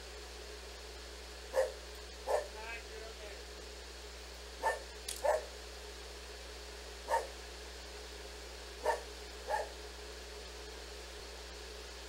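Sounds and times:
dog barking: 0:01.5 - 0:02.6, 0:04.6 - 0:05.5, 0:07.1 - 0:07.3, 0:08.8 - 0:09.8.

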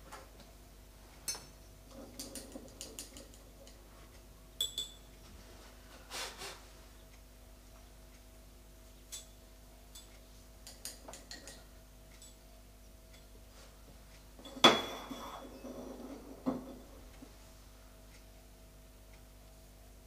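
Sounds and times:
ceramic pots clinking: 0:14.4 - 0:17.1.

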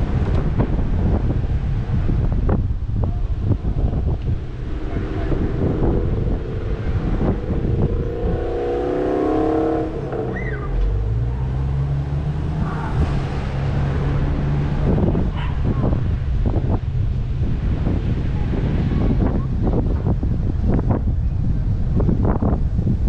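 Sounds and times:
car engine and road rumble: 0:00.0 - 0:23.0
wind noise on microphone: 0:00.0 - 0:23.0.

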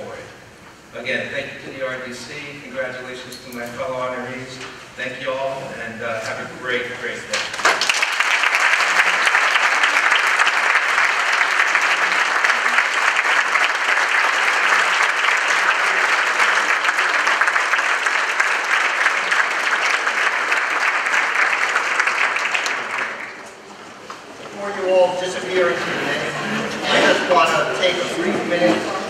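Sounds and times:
audience applauding: 0:07.4 - 0:24.0.

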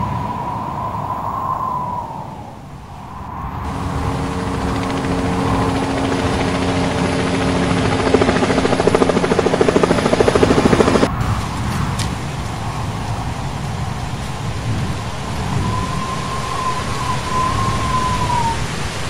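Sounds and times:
helicopter engine hum: 0:03.4 - 0:11.1
helicopter rotor chopping: 0:03.6 - 0:11.1.

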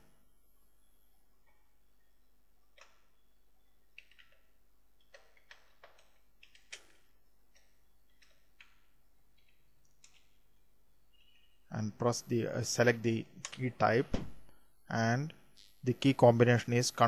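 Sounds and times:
faint keyboard typing: 0:03.8 - 0:10.6.

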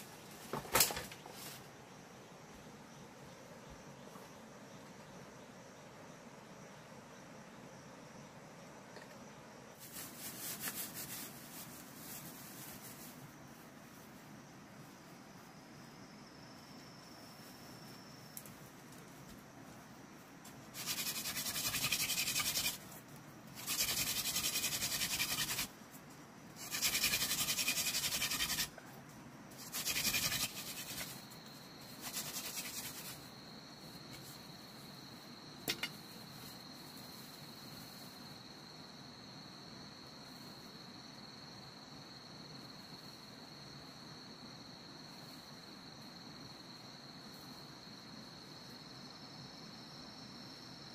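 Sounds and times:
high insect drone: 0:00.0 - 0:50.9
bamboo grinding against bamboo: 0:20.7 - 0:23.0, 0:23.6 - 0:25.7, 0:26.6 - 0:28.7, 0:29.6 - 0:31.2, 0:32.0 - 0:33.1.

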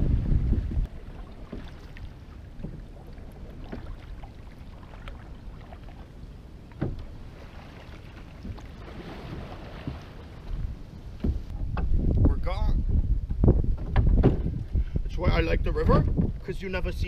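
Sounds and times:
paddle dipping and splashing: 0:00.0 - 0:12.1
water moving along hull: 0:00.0 - 0:17.0.

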